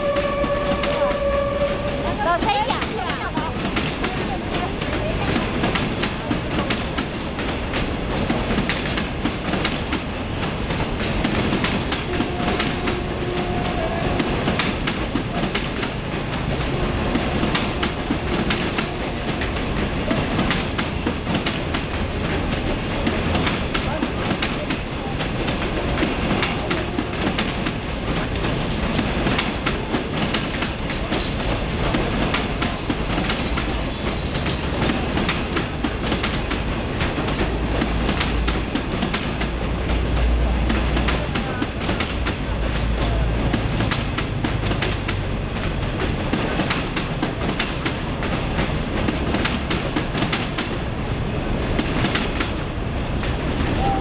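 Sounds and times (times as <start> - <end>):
clickety-clack of wheels on track: 0.0 - 54.0
train wheels rumbling on rails: 0.0 - 54.0.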